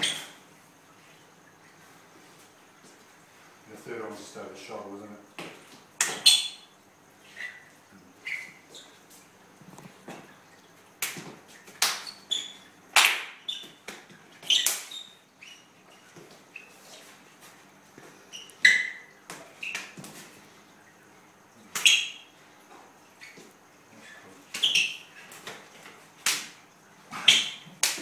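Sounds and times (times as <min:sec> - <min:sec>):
shoes squeaking on wooden floor: 0:00.0 - 0:00.4, 0:05.4 - 0:10.4, 0:11.2 - 0:12.8, 0:13.4 - 0:20.4, 0:21.8 - 0:26.0, 0:27.1 - 0:28.0
hands slapping forearms: 0:05.4 - 0:06.3, 0:11.0 - 0:12.2, 0:12.9 - 0:14.9, 0:26.2 - 0:26.6, 0:27.3 - 0:28.0.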